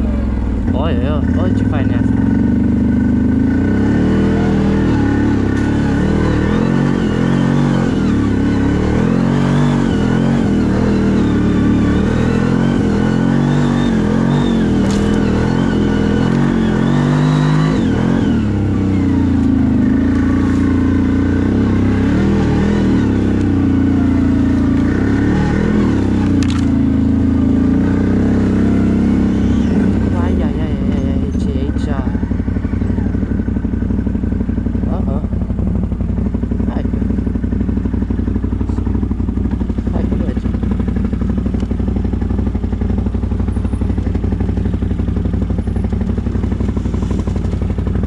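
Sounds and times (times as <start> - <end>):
atv engine revving: 0.0 - 48.0
sharp clicks: 26.2 - 26.7.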